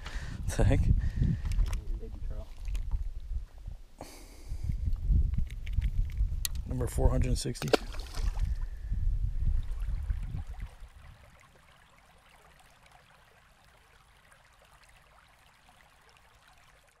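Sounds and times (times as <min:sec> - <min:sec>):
wind rumbling on microphone: 0:00.0 - 0:11.6.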